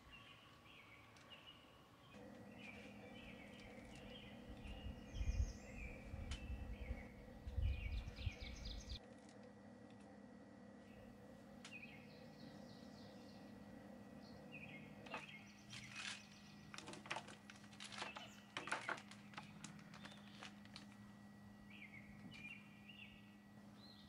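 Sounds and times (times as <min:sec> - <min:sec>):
faint birds chirping: 0:00.0 - 0:24.0
low steady hum: 0:00.0 - 0:24.0
plastic bag crinkling: 0:15.7 - 0:21.0.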